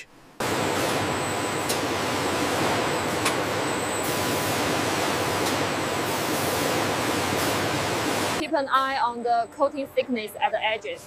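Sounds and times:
machinery hissing and humming: 0.4 - 8.4.

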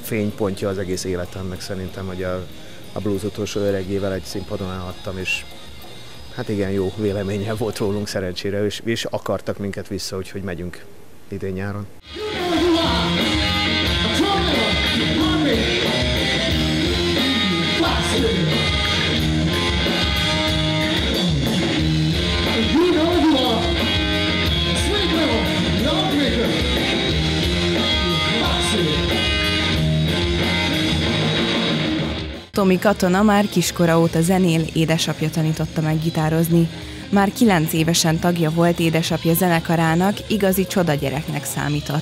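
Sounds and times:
drums: 0.0 - 8.0, 12.0 - 42.0
bass guitar: 12.0 - 32.6
electric guitar: 12.0 - 42.0
man singing: 12.1 - 16.1, 16.8 - 19.0, 22.4 - 24.0, 24.6 - 26.8, 27.8 - 29.5.

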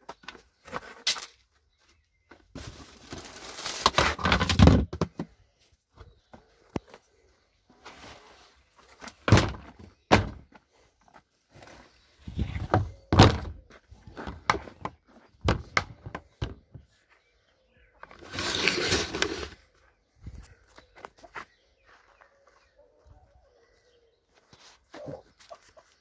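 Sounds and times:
rustling scrape: 7.7 - 9.0, 18.1 - 19.7
shed doors thumping shut: 9.2 - 10.4, 12.8 - 13.6.

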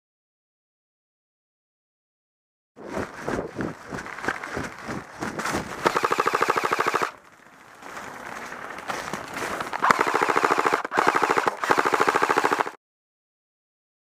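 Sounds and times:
airsoft rifle full auto fire: 5.8 - 7.2, 9.8 - 12.8.

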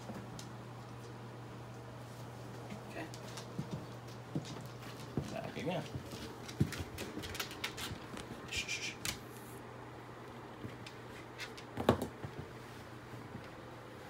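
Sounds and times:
shoes scuffling on tile floor: 2.0 - 8.5
dog claws clicking on tile floor: 2.5 - 8.3, 10.6 - 12.5.

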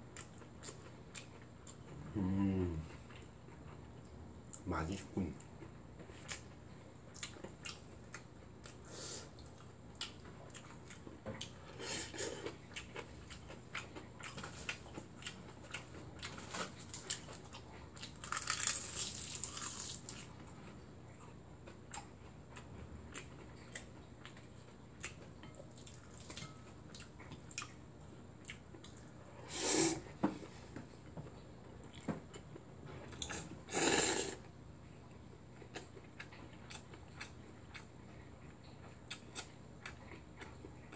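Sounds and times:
loud slurp of noodles: 29.5 - 30.0, 33.7 - 34.4.

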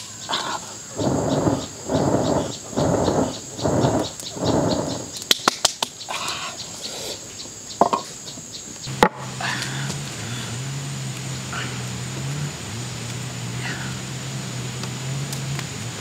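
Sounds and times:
high shrill of insects: 0.0 - 7.8
person blowing on fire: 0.3 - 5.2.

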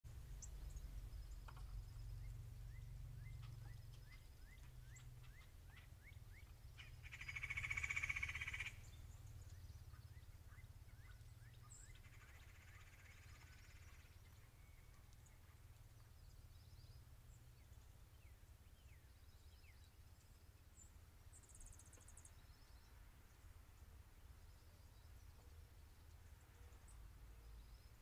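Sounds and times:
low steady rumble: 0.1 - 28.0.

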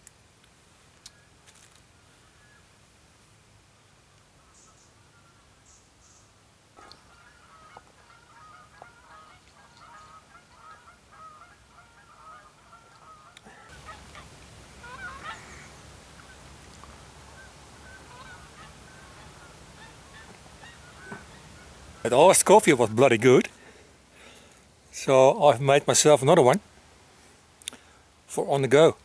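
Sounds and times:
steady background hiss: 0.0 - 29.0
geese honking: 6.8 - 24.3.

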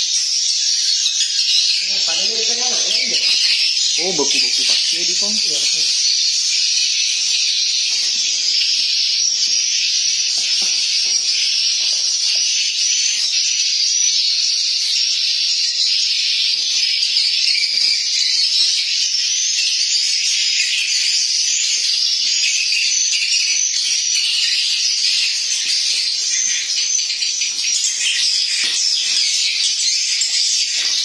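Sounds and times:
swiftlets twittering: 1.8 - 6.6.

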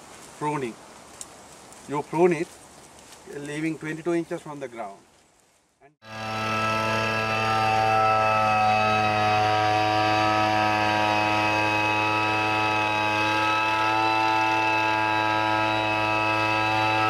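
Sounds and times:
tea harvester engine running: 6.1 - 17.0.

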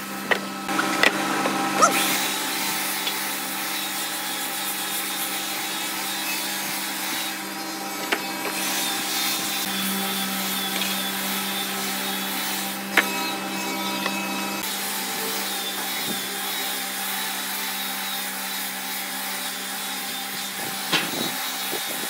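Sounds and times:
motor hum: 0.0 - 3.9
belt sander on wood: 0.0 - 22.0.

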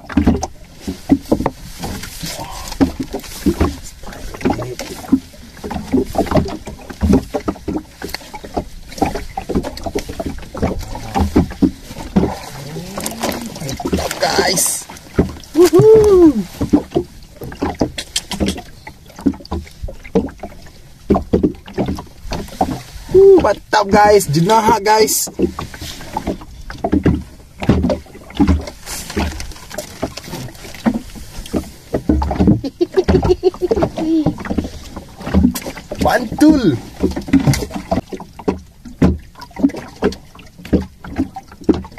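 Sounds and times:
knocks and thumps on boat: 0.0 - 41.9
water wash: 0.0 - 41.9
wind: 0.0 - 41.9
objects knocking against boat hull: 26.2 - 36.1.

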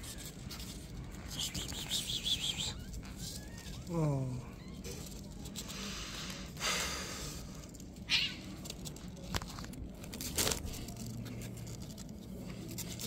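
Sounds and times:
rustling on cardboard: 0.0 - 1.9, 2.7 - 3.9, 7.8 - 13.0
kittens mewing: 0.0 - 5.7, 8.0 - 8.8.

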